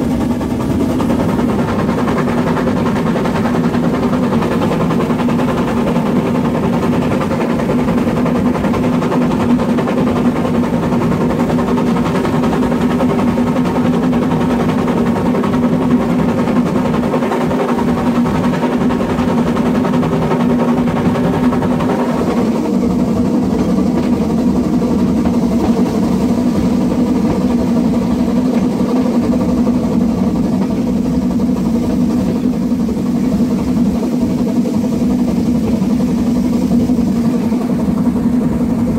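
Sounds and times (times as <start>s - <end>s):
steam locomotive rushing: 0.0s - 38.9s.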